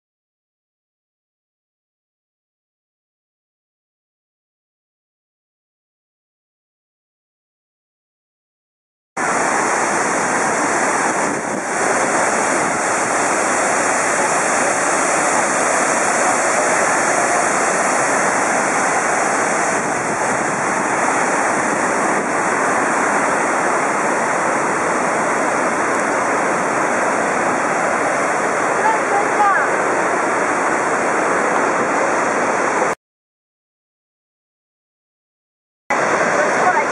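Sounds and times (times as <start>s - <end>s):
waterfall rushing: 9.2s - 33.0s, 35.9s - 36.9s.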